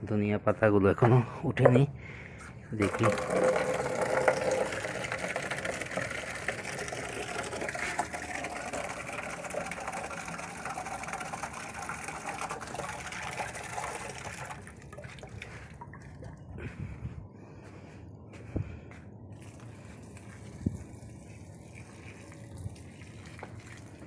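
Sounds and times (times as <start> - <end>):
tap water filling a plastic bucket: 2.8 - 16.2, 19.4 - 24.0.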